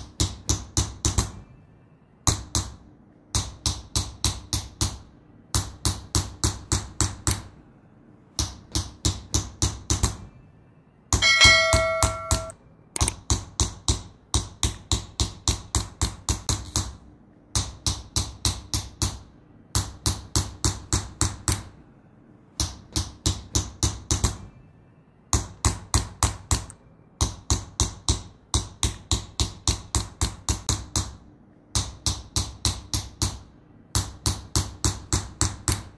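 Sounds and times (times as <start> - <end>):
hammer tapping metal engraving tool: 11.1 - 21.7, 25.3 - 35.9
metallic ringing: 11.2 - 12.6.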